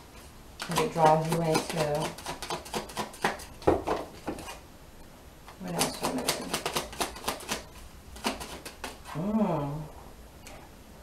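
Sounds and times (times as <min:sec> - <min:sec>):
cards shuffling: 0:00.6 - 0:04.6, 0:05.8 - 0:09.1.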